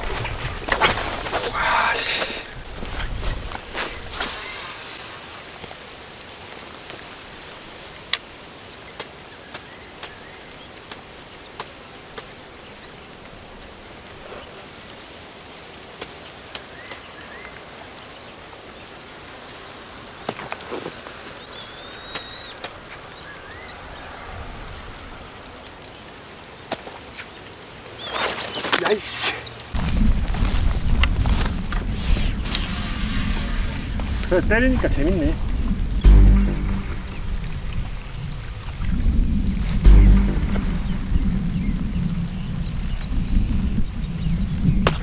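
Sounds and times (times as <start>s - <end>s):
steady hiss: 0.0s - 42.8s
bird chirps: 21.4s - 24.0s.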